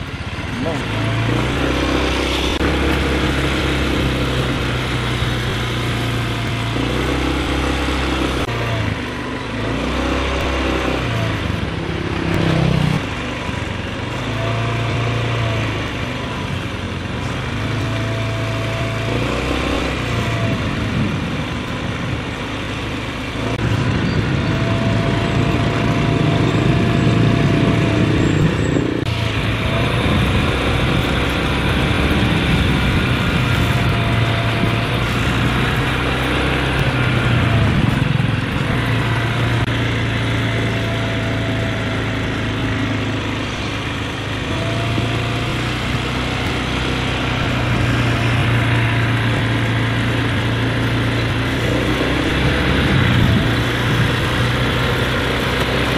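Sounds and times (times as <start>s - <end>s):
small motorcycle engine running: 0.0s - 55.9s.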